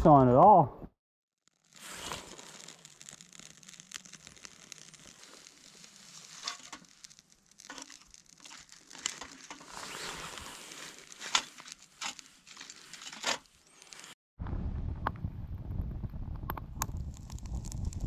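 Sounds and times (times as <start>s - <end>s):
wood fire crackling: 1.4s - 14.2s, 15.1s - 18.0s
faint hiss: 1.7s - 7.9s.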